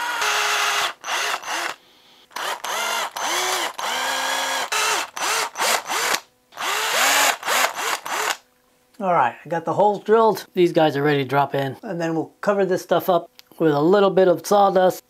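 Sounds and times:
cordless drill whining: 0:00.0 - 0:08.4.

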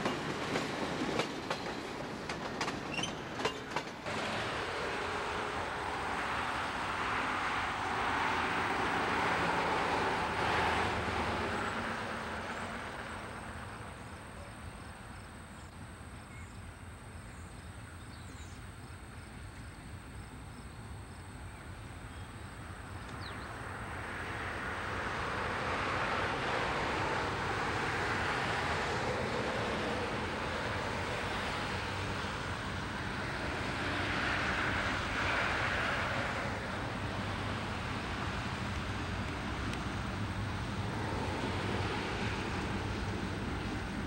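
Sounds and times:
train wheels running: 0:00.0 - 0:13.3
diesel locomotive engines: 0:00.0 - 0:44.0.

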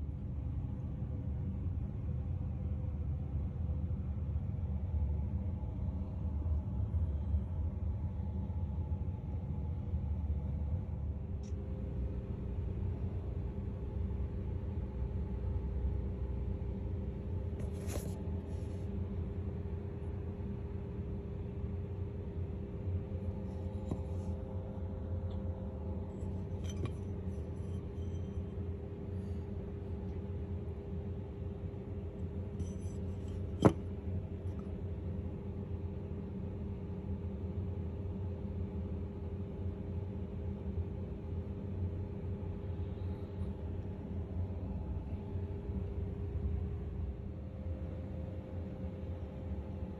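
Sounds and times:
faint constant hum: 0:00.0 - 0:49.9
low background rumble: 0:00.0 - 0:49.9
soft rustle: 0:17.6 - 0:18.8.

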